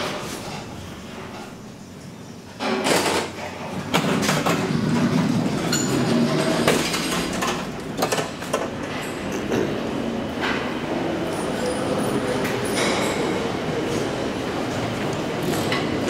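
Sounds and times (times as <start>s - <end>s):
elevator door sliding open: 2.6s - 16.0s
metro train rumbling: 3.4s - 16.0s.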